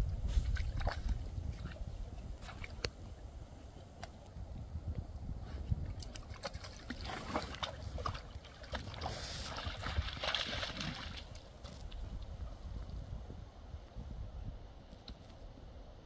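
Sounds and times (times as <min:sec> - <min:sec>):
water sloshing and splashing: 0:00.1 - 0:03.1, 0:05.6 - 0:12.5.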